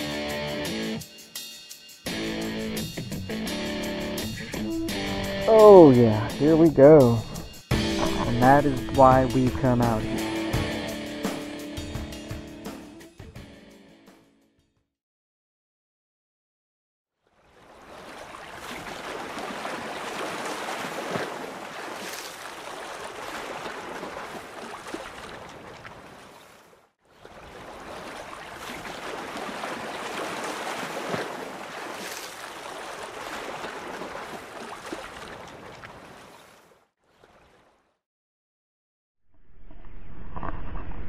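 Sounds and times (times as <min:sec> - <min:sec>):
rushing water like surf: 0:02.1 - 0:12.9, 0:17.4 - 0:37.8.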